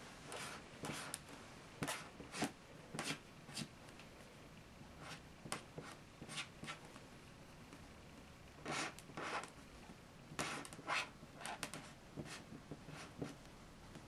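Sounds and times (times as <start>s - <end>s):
marker pens scratching on paper: 0.3s - 1.2s, 1.8s - 3.7s, 5.0s - 6.8s, 8.6s - 9.5s, 10.3s - 13.4s.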